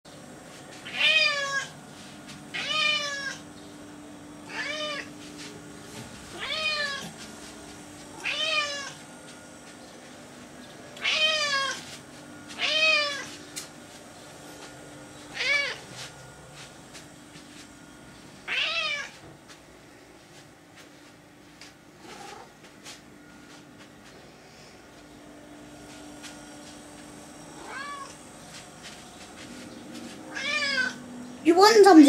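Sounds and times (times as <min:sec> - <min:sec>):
cat meowing: 0:00.9 - 0:01.7, 0:02.6 - 0:03.4, 0:04.5 - 0:05.1, 0:06.3 - 0:07.1, 0:08.2 - 0:09.0, 0:11.0 - 0:11.8, 0:12.6 - 0:13.3, 0:18.5 - 0:19.1, 0:27.6 - 0:28.1, 0:30.3 - 0:31.0.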